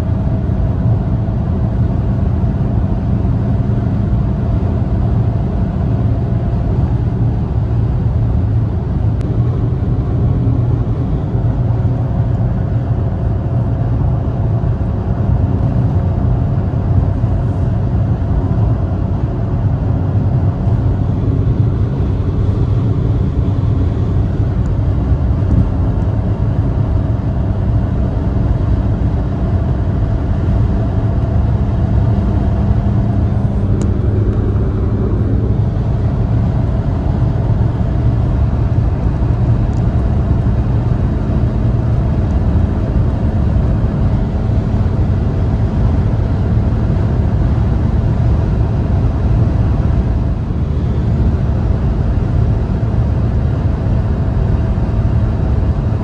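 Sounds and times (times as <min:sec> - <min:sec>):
car engine running hard: 0:00.0 - 0:56.0
wind and tyre noise: 0:00.0 - 0:56.0.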